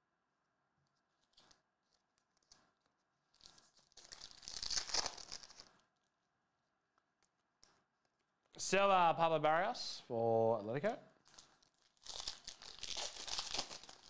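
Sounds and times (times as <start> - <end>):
card pack wrapper tearing: 3.3 - 5.7, 11.2 - 14.0.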